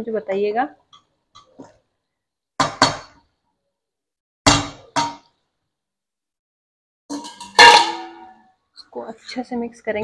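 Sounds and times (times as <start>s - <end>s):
knocks on metal pan: 4.5s - 5.3s
metal bowl clanging against pan: 7.1s - 8.4s.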